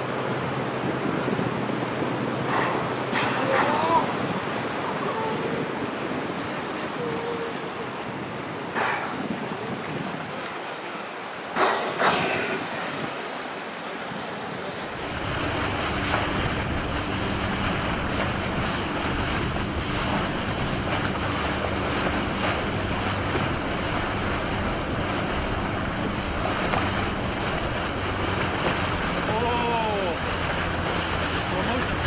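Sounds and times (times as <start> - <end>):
wind buffeting microphone: 0.0 - 13.4, 14.8 - 32.0
boat engine hum: 0.0 - 32.0
water rushing past boat: 0.0 - 32.0.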